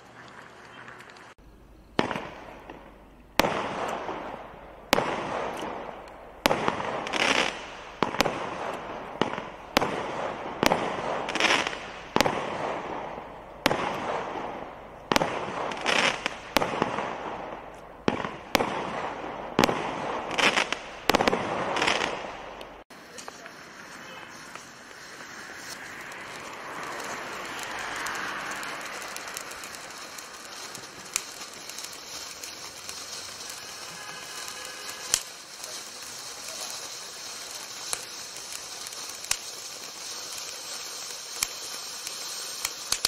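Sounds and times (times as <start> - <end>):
firework bangs: 1.2 - 43.0
hiss of bursting stars: 1.9 - 43.0.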